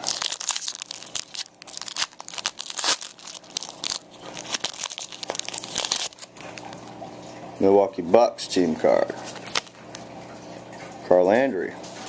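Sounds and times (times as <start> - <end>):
foil wrapper tearing and crinkling: 0.0 - 6.8, 9.2 - 10.0.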